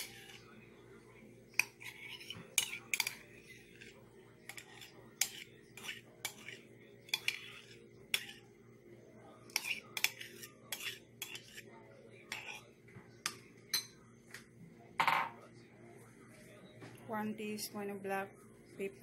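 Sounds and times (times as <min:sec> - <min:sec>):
spoon scraping mayonnaise: 0:00.0 - 0:00.6, 0:01.5 - 0:08.5, 0:09.4 - 0:13.3
spoon clinking on dishware: 0:01.6 - 0:03.3, 0:04.5 - 0:08.4, 0:13.2 - 0:14.0, 0:15.0 - 0:15.4.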